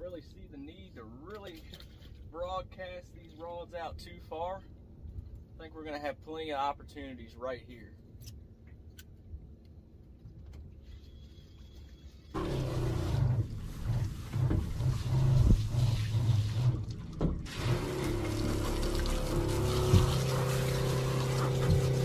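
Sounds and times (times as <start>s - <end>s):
faint low rumble: 0.0s - 17.5s
pump spraying water: 12.3s - 22.0s.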